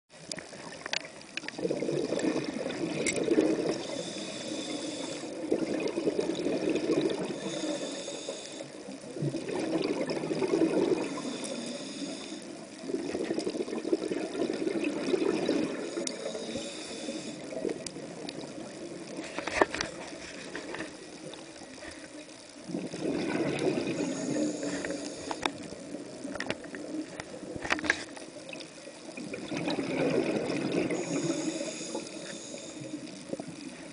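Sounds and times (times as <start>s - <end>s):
exhaled bubbles rumbling: 0.4s - 4.2s, 5.1s - 8.0s, 8.7s - 11.9s, 12.6s - 16.6s, 17.2s - 31.9s
underwater regulator breathing: 3.3s - 5.5s, 7.2s - 8.9s, 10.7s - 12.7s, 15.6s - 17.8s, 23.2s - 25.6s, 30.8s - 33.2s.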